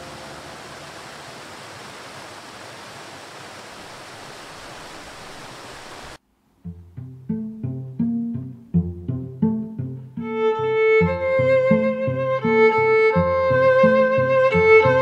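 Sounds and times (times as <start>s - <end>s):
waterfall rushing: 0.0s - 6.2s
cello notes: 6.6s - 15.0s.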